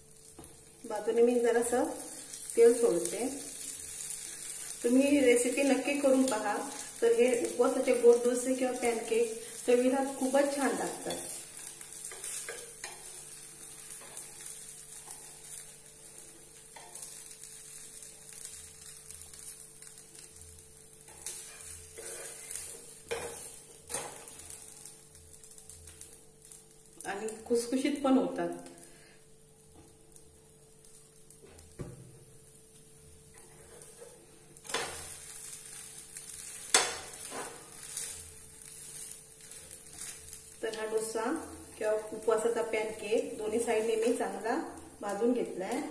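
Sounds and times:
pancake sizzling in oil: 0.0 - 45.9
spatula tapping and scraping pan: 12.0 - 13.2, 21.1 - 24.4, 36.4 - 38.1.

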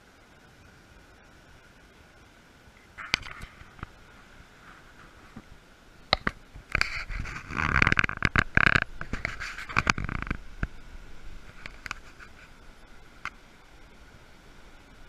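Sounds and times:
faint steady hiss: 0.0 - 15.0
camera handling scraping and clicks: 6.2 - 10.3.

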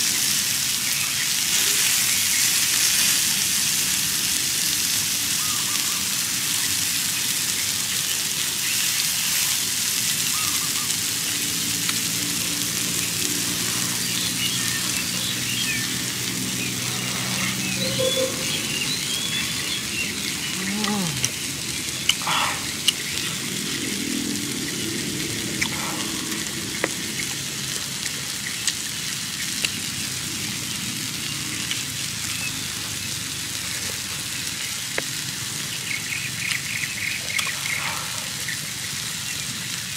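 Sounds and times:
steak sizzling on hot stone: 0.0 - 39.9
bird chirps: 14.1 - 20.6
low voice humming: 20.6 - 21.3.

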